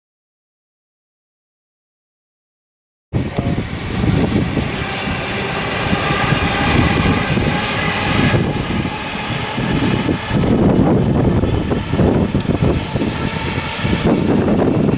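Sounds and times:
electric train passing: 0:03.2 - 0:14.9
wind buffeting microphone: 0:03.2 - 0:14.9.

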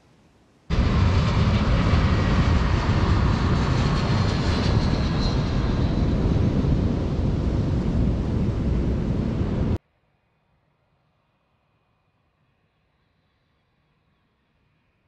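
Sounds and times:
jet engines rushing: 0:00.7 - 0:09.8
faint falling whine: 0:05.0 - 0:09.8.

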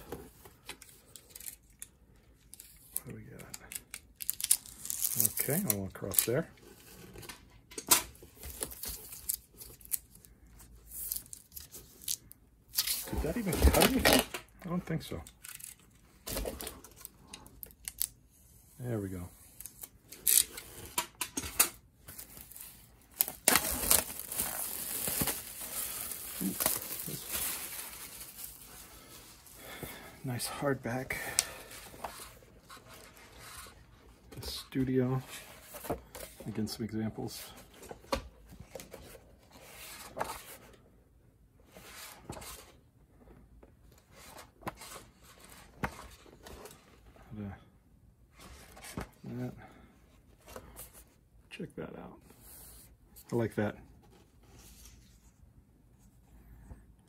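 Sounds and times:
plastic wrap crinkling and tearing: 0:03.8 - 0:06.3, 0:22.3 - 0:29.3.

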